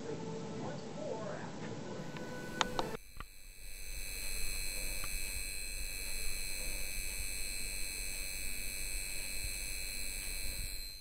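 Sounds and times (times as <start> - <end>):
low electrical crackle: 1.9 - 11.0
light bulb electrical hum: 2.0 - 11.0.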